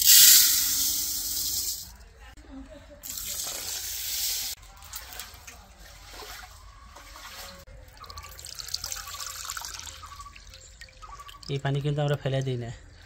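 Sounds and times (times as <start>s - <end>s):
small splashes: 3.1s - 11.7s
water sloshing: 4.7s - 12.2s
water pouring into metal pot: 8.0s - 11.6s.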